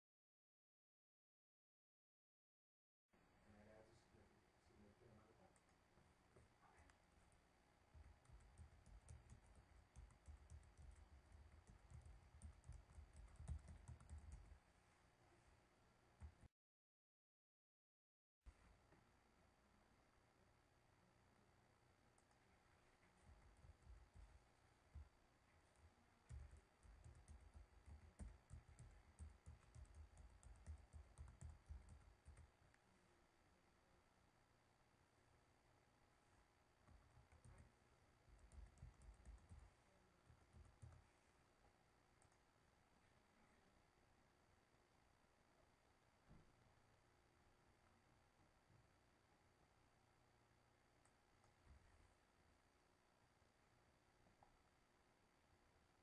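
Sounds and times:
typing on computer keyboard: 7.9s - 14.6s, 23.2s - 25.1s, 25.7s - 32.5s, 36.9s - 37.7s, 38.4s - 39.7s, 40.3s - 41.0s.

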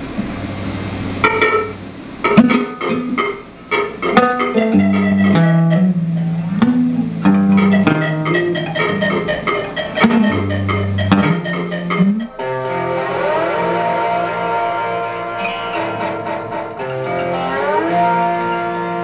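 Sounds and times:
plucked guitar notes: 1.2s - 19.0s
live band playing: 2.4s - 19.0s
stepping bass line: 4.1s - 12.4s.

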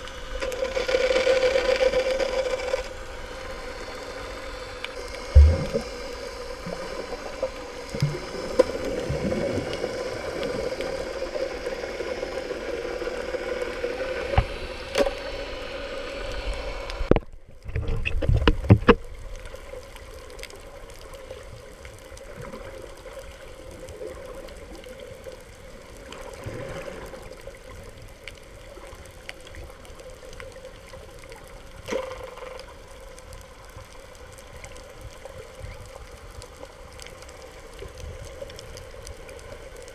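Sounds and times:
steady hum: 2.2s - 19.0s
muffled underwater rush: 5.0s - 14.7s.

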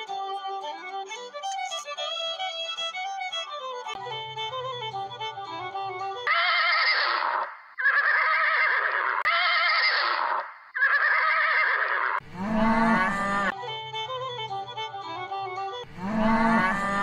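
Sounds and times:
violin tune: 0.0s - 7.0s, 12.2s - 17.0s
horse whinnying: 6.3s - 13.5s
cow mooing: 12.2s - 13.6s, 15.9s - 17.0s.

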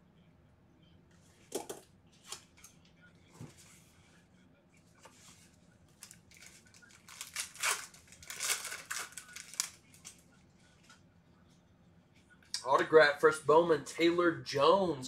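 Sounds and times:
foil wrapper crinkling and tearing: 5.9s - 10.2s.

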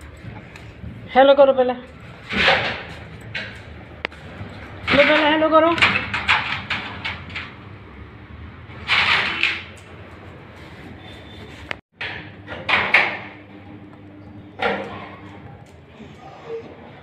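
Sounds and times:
door rattling in frame: 2.2s - 7.6s.

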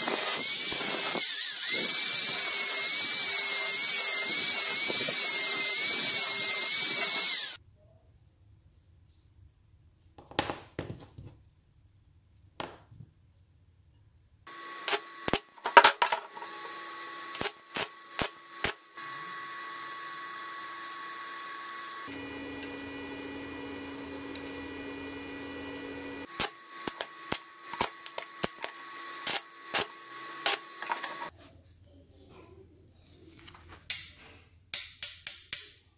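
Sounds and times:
steady hum: 22.1s - 31.3s.

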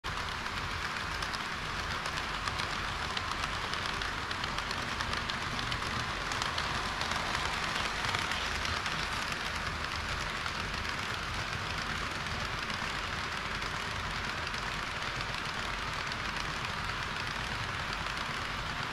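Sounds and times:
model train wheels rattling: 0.0s - 18.9s.

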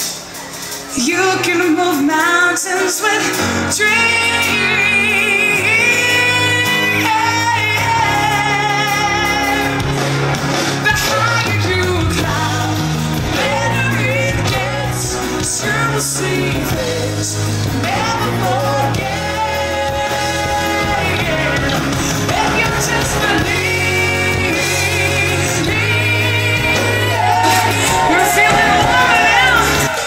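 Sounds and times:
backing band: 0.0s - 30.0s
woman singing into microphone: 0.9s - 10.0s, 10.8s - 30.0s.

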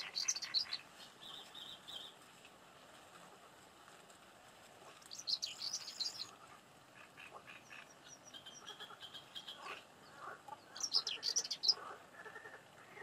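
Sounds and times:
faint birdsong chirps: 0.0s - 2.2s, 5.0s - 6.4s, 7.0s - 13.0s.

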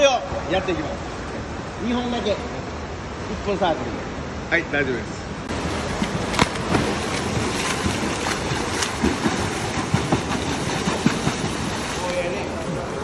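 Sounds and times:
churning water: 5.3s - 13.0s
sharp water splashes: 5.5s - 12.7s.

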